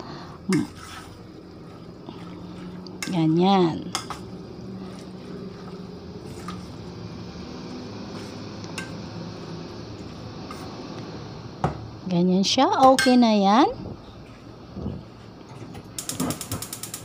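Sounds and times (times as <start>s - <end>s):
low steady hum: 0.0s - 15.9s
wet squishing of stirred batter: 0.4s - 9.0s.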